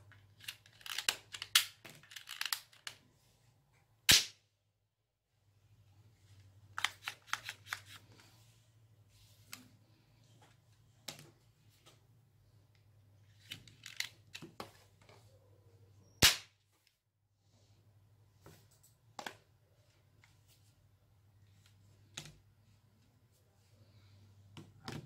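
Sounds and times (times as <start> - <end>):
loud sharp plastic snap: 4.1 - 4.4, 16.2 - 16.6.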